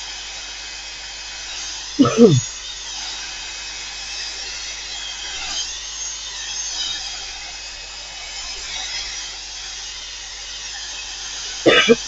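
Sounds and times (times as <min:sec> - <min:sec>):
heat tool blowing hiss: 0:07.1 - 0:12.0.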